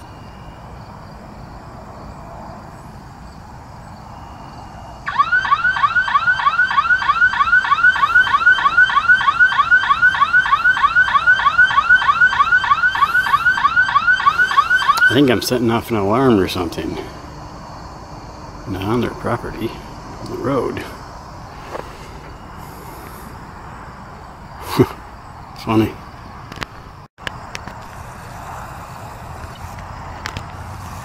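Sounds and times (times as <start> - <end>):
car hum: 0.0 - 31.0
electronic alarm warbling chirps: 5.1 - 15.3.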